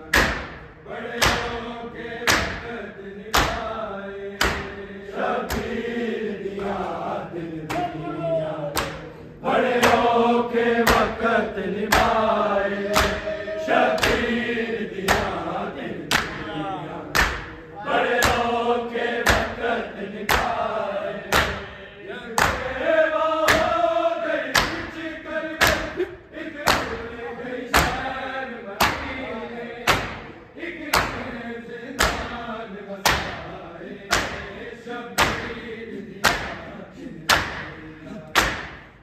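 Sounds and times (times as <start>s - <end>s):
men chanting together: 0.0s - 39.0s
hands slapping chests: 0.1s - 1.6s, 2.2s - 2.7s, 3.3s - 3.8s, 4.4s - 4.8s, 5.4s - 6.9s, 7.6s - 8.0s, 8.7s - 10.2s, 10.8s - 11.2s, 11.8s - 18.6s, 19.2s - 19.6s, 20.2s - 21.7s, 22.4s - 22.8s, 23.4s - 23.8s, 24.5s - 25.0s, 25.6s - 27.1s, 27.7s - 28.1s, 29.8s - 31.3s, 32.0s - 32.4s, 33.0s - 33.5s, 34.1s - 34.6s, 35.2s - 35.6s, 36.2s - 36.7s, 37.3s - 39.0s.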